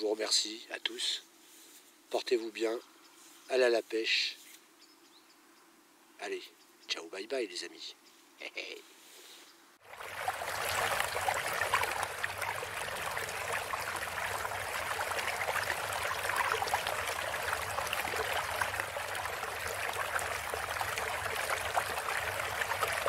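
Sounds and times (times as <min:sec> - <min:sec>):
bubbling water trickling: 0:09.8 - 0:23.0.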